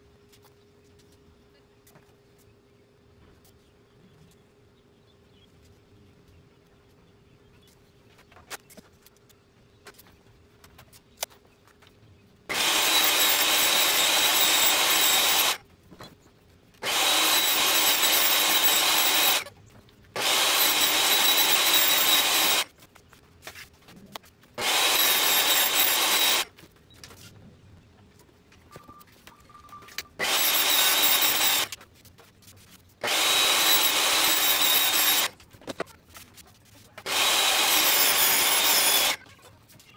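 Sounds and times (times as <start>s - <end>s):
table saw cutting wood: 12.5s - 15.6s, 16.8s - 19.5s, 20.2s - 22.7s, 24.6s - 26.5s, 30.2s - 31.8s, 33.0s - 35.4s, 37.0s - 39.2s.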